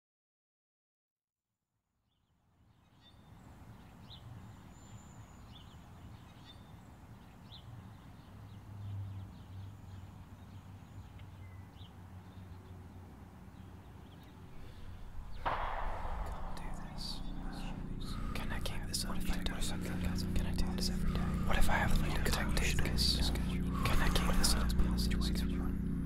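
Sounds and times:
birds chirping: 3.0s - 26.0s
steady low hum: 14.4s - 26.0s.

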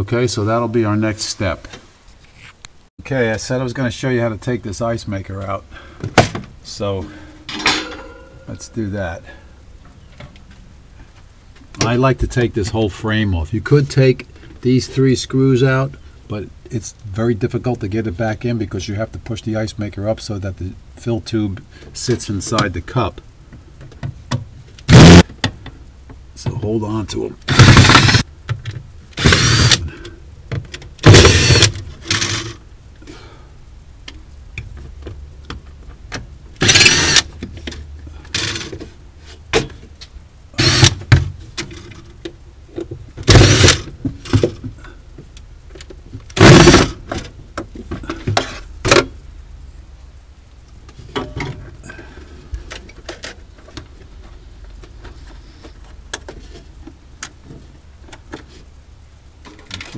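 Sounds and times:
cordless drill bursts: 24.9s - 25.2s, 27.5s - 28.2s, 29.2s - 29.9s, 31.0s - 32.5s, 36.6s - 37.3s, 40.6s - 41.0s, 43.3s - 43.9s, 46.4s - 46.9s.

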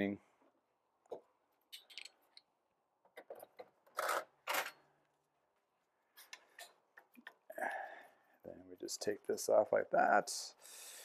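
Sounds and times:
metallic clicks and scrapes of tools: 1.7s - 2.5s.

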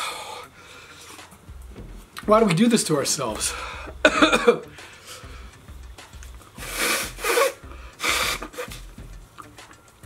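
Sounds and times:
man breathing hard: 0.0s - 1.2s, 3.5s - 5.6s, 6.6s - 8.8s.

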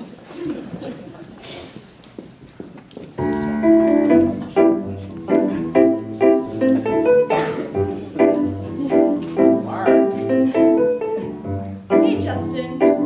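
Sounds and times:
electric keyboard piano chords: 3.2s - 13.0s.

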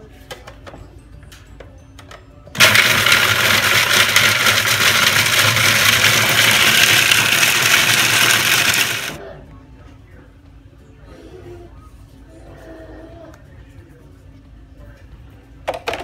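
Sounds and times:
food processor grinding: 2.6s - 9.2s.

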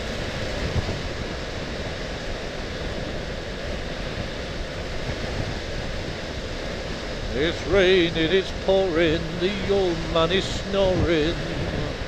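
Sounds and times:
wind rushing: 6.8s - 12.0s.

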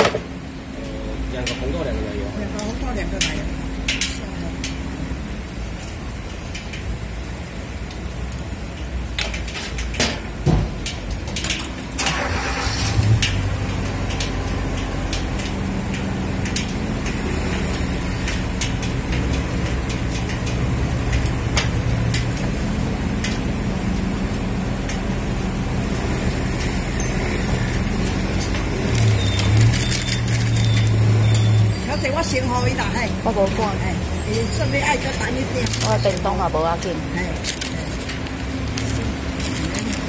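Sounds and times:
vehicle engine running: 12.1s - 40.0s.

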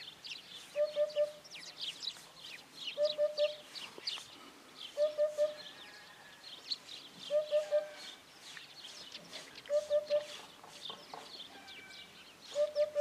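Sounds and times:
small birds chirping: 0.0s - 13.0s
hoopoe call: 0.8s - 1.4s, 3.0s - 3.7s, 4.9s - 5.7s, 7.3s - 8.2s, 9.6s - 10.5s, 12.5s - 13.0s.

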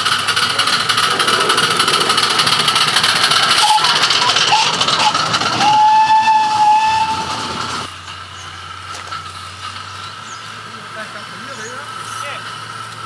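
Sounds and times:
miniature train clattering: 0.0s - 13.0s
train whistle: 3.6s - 7.6s.

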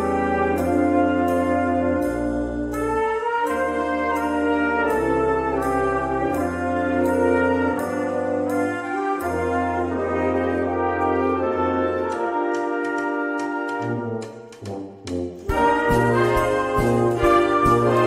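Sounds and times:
brass melody: 0.0s - 18.0s
orchestra playing swing: 0.0s - 18.0s
cymbal ticks: 12.0s - 15.7s.

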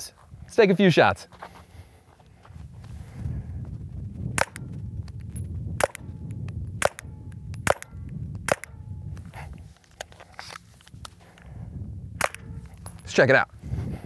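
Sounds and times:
steady low rumble: 0.2s - 14.0s
handgun shots: 5.8s - 6.1s, 6.8s - 8.8s, 12.2s - 12.6s.

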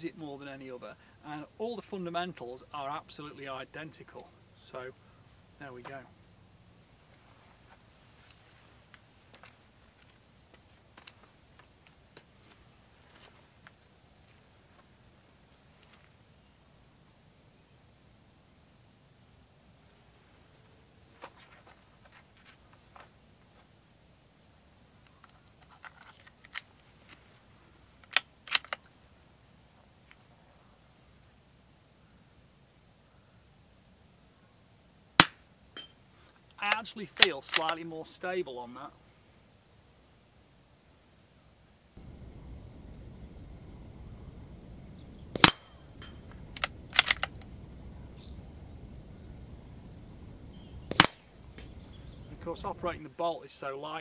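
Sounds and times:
rifle bolt clicking: 28.1s - 28.8s, 46.5s - 47.5s, 50.9s - 51.7s
rifle shot: 42.0s - 47.6s, 50.8s - 51.8s
chains clinking: 51.0s - 51.8s.

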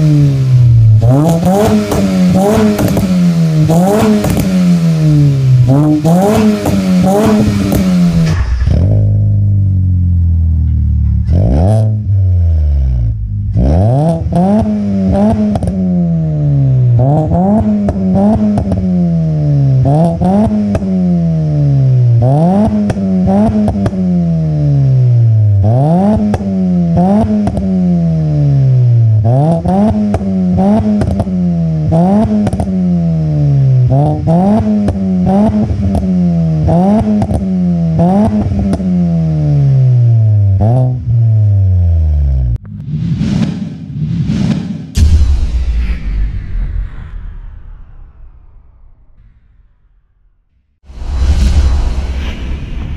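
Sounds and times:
car engine revving in blips: 0.0s - 45.1s.

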